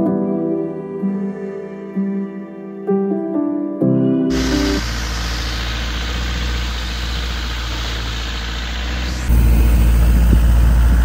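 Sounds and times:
boat engine rumbling: 0:04.3 - 0:11.0.

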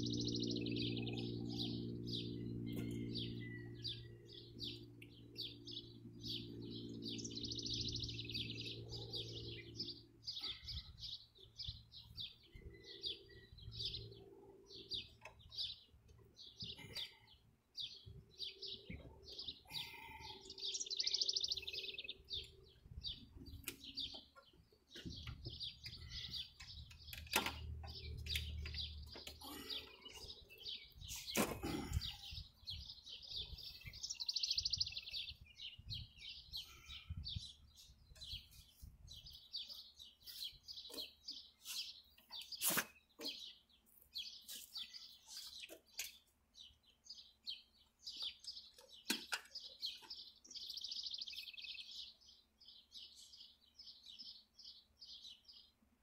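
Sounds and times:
low engine hum: 0:00.0 - 0:10.6
songbirds chirping: 0:00.0 - 0:56.0.

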